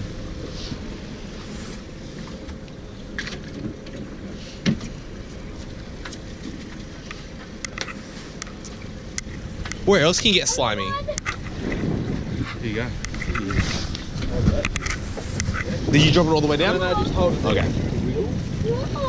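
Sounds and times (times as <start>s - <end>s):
outboard motor idling: 0.0s - 19.0s.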